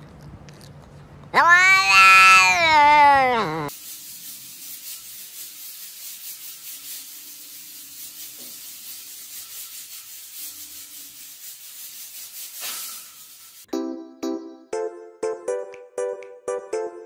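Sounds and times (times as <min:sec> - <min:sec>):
steam hissing from pressure cooker: 0:03.7 - 0:13.7.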